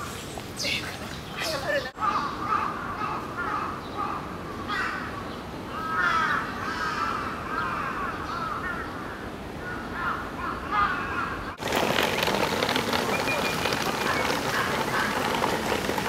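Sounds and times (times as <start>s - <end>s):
outdoor background noise: 0.0s - 16.0s
crows cawing: 2.0s - 5.1s, 5.7s - 9.0s, 9.6s - 11.6s.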